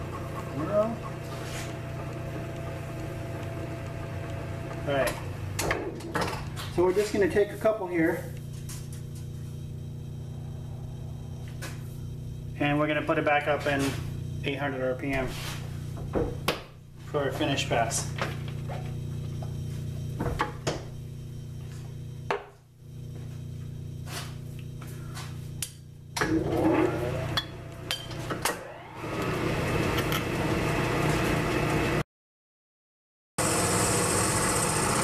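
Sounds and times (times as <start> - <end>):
lathe spindle whining: 0.0 - 14.8, 26.2 - 32.0, 33.4 - 35.0
lathe motor humming: 0.0 - 22.3, 26.2 - 32.0, 33.4 - 35.0.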